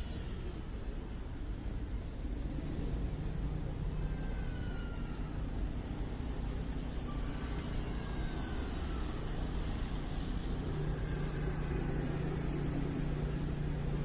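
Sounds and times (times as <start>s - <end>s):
passing vehicles rumbling: 0.0s - 14.0s.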